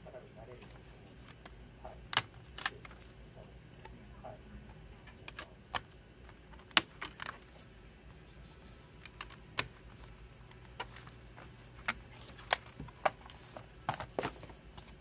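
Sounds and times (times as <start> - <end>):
plastic case clicks and snaps: 6.5 - 7.4.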